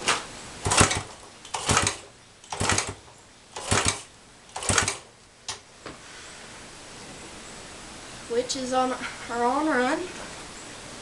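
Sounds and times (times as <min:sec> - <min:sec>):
motorcycle engine being kick-started: 0:00.1 - 0:05.6.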